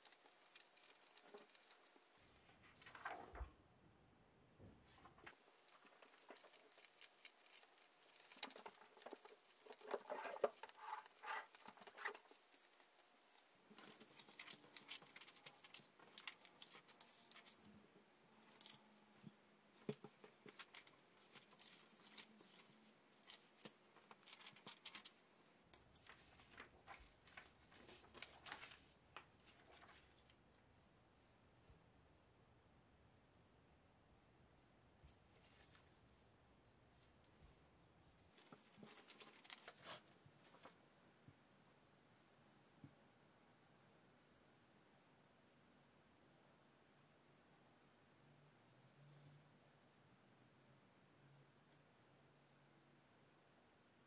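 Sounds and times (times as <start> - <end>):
paper rustling and crackling: 0.0 - 3.5, 4.9 - 17.8, 18.5 - 30.4, 38.3 - 40.8.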